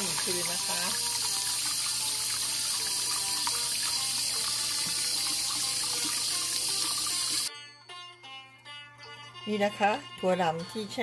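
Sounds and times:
tap water running into strainer: 0:00.0 - 0:07.5.

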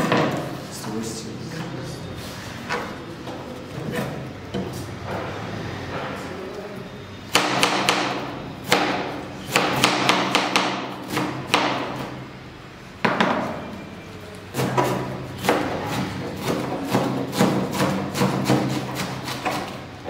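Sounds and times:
knife chopping cabbage on board: 0:07.3 - 0:12.2, 0:14.6 - 0:19.8.

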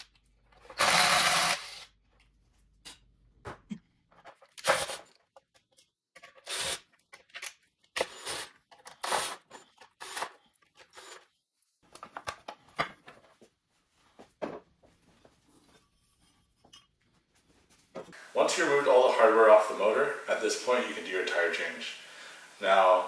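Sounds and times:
cordless drill bursts: 0:00.8 - 0:01.9.

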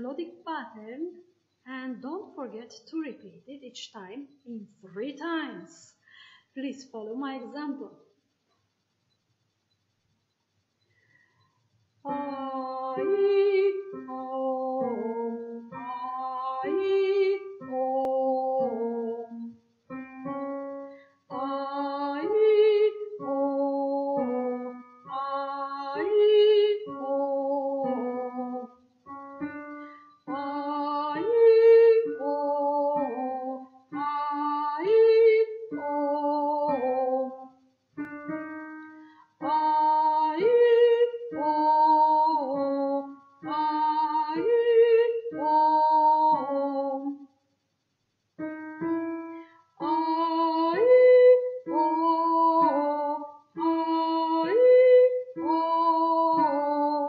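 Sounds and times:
woman singing vocal warm-up: 0:12.1 - 0:19.6, 0:21.2 - 0:37.5, 0:38.3 - 0:47.2, 0:48.9 - 0:57.0.

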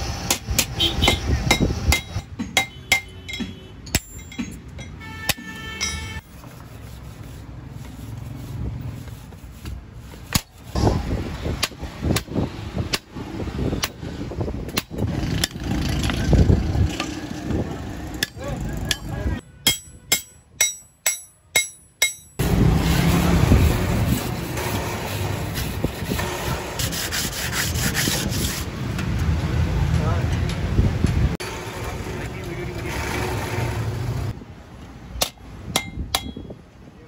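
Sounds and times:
hammer blows on metal: 0:00.2 - 0:06.2, 0:35.2 - 0:36.6
sharp metal taps: 0:00.3 - 0:06.2, 0:18.2 - 0:22.4, 0:35.2 - 0:36.6.

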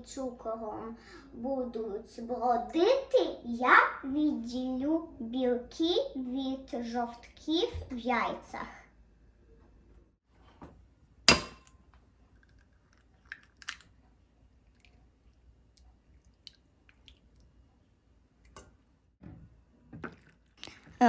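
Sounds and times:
egg cracking on steel bowl: 0:11.3 - 0:14.0.

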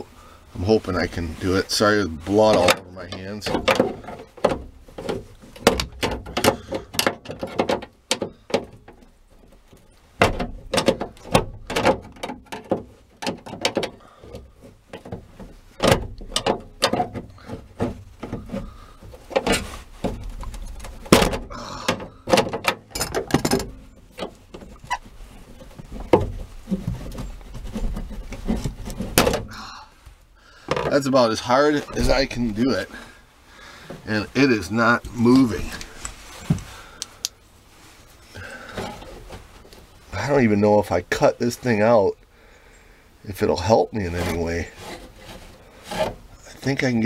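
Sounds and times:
screwdrivers clicking and knocking on metal: 0:20.4 - 0:24.7.

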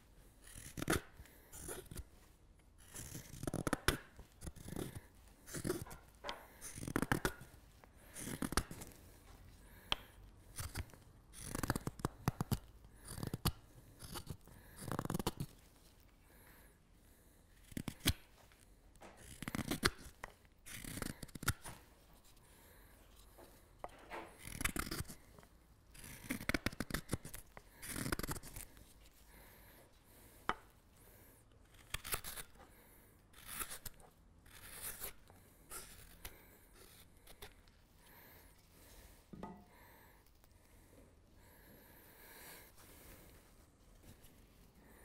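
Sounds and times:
hook knife slicing wood: 0:19.1 - 0:21.9, 0:23.8 - 0:25.2.

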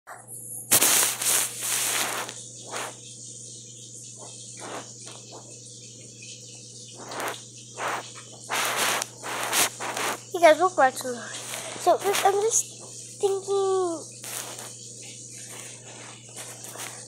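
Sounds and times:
steady high hiss: 0:00.7 - 0:05.5, 0:06.9 - 0:17.0.

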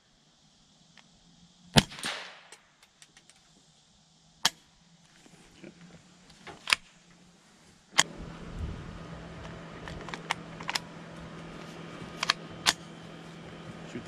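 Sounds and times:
rifle shots cracking: 0:01.7 - 0:02.6.

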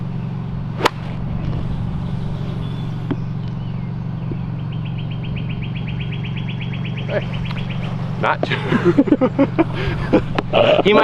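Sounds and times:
low motor hum: 0:00.0 - 0:11.0
bird chirping trill: 0:01.2 - 0:08.2.

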